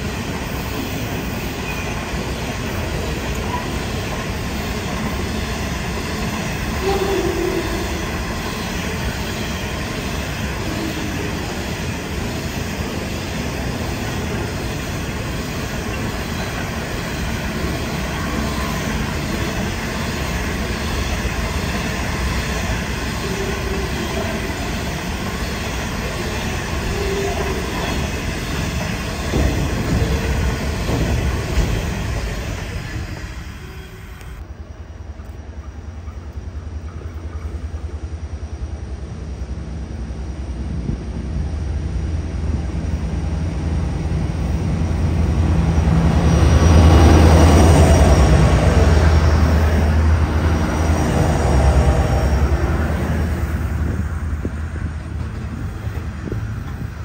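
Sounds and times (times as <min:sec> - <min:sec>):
train wheels rumbling on rail: 0:00.0 - 0:57.0
wheel squeals: 0:00.8 - 0:02.5.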